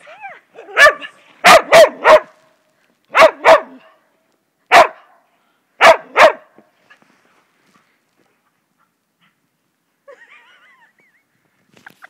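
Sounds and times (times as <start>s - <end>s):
dog barking: 0.7s - 2.4s, 3.1s - 4.0s, 4.7s - 5.1s, 5.8s - 6.5s.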